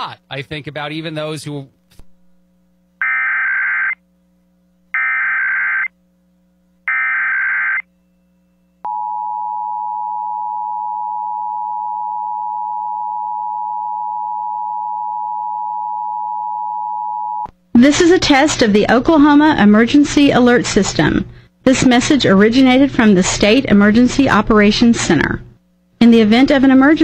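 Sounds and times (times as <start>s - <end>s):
warbling digital data tones: 5.0s - 5.9s, 6.9s - 7.8s.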